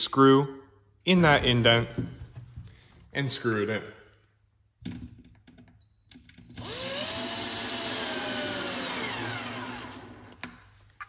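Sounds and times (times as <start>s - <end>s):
cordless drill motor whining: 6.6s - 10.4s.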